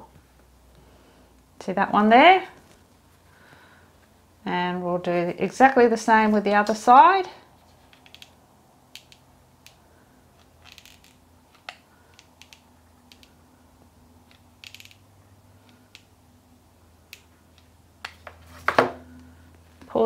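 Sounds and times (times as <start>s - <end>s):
low steady hum: 0.0s - 20.0s.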